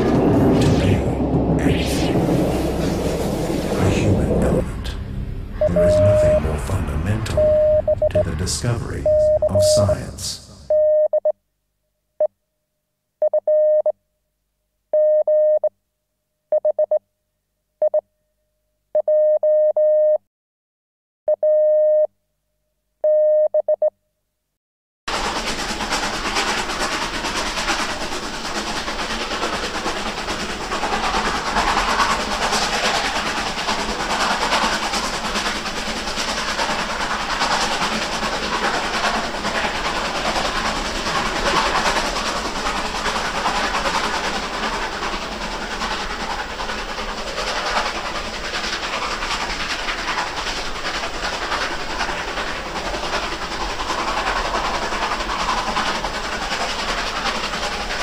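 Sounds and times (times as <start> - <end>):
dense steady noise: 0.0 - 10.7
stuttering electronic beeps: 5.6 - 11.1.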